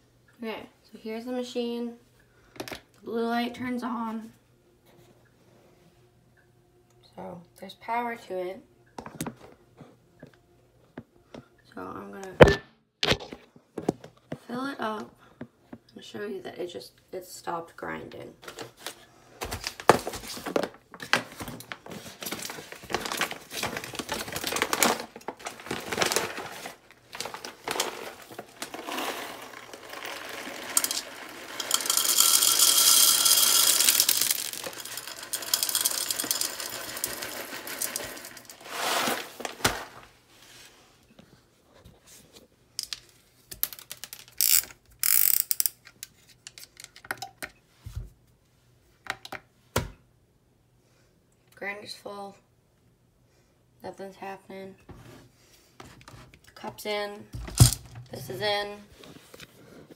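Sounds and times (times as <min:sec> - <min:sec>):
foil bag crinkling: 0:19.5 - 0:40.1
coffee beans pouring into hopper: 0:24.1 - 0:40.0.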